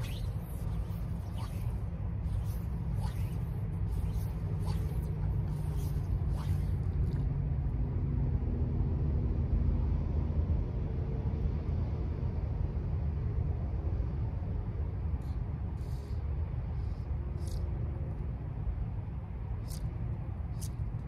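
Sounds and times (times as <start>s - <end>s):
fly line swishing: 0.0s - 7.6s, 19.5s - 21.0s.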